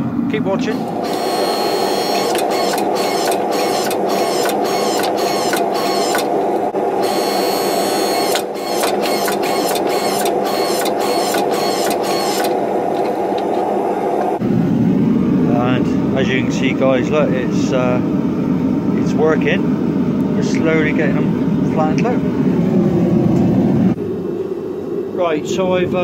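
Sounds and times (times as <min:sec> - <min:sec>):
motor and pump hum: 0:00.0 - 0:14.5
hydraulic press rhythmic pulsing: 0:00.7 - 0:14.4.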